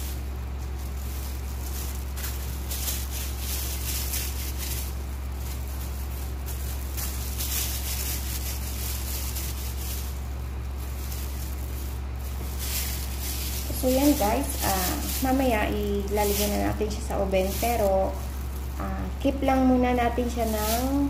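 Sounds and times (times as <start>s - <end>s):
plastic gloves rustling: 0.0s - 21.0s
steady low hum: 0.0s - 21.0s.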